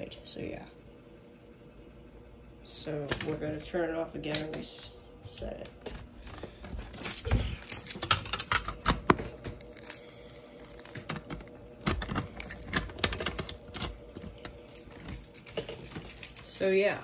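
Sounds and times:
faint steady hum: 0.0 - 17.0
keys jangling: 6.3 - 17.0.

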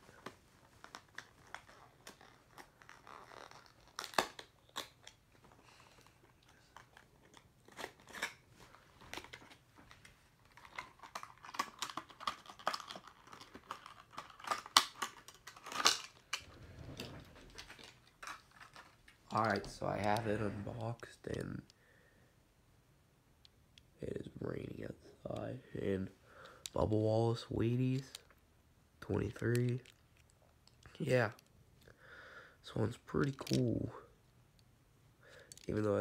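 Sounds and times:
plastic crackling and crinkling: 0.0 - 21.6
packaging torn open by hand: 0.9 - 5.2.

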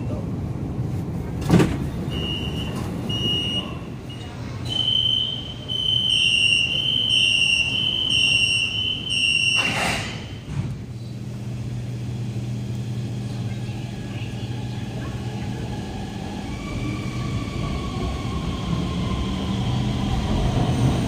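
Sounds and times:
doors sliding closed whoosh: 9.4 - 10.9.

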